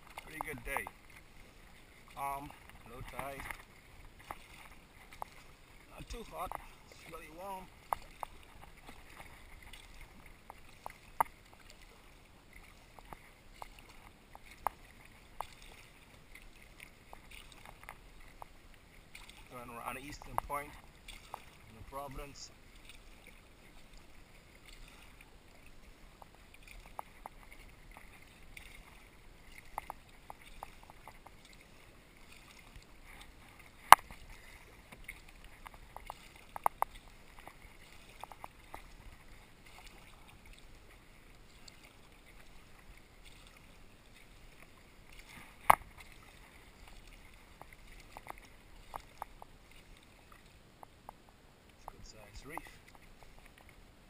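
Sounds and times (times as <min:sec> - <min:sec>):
paddle sloshing and dripping: 0:00.0 - 0:54.0
small ticks: 0:07.8 - 0:11.7, 0:16.8 - 0:18.5, 0:26.2 - 0:31.6, 0:34.9 - 0:39.2, 0:46.9 - 0:52.0.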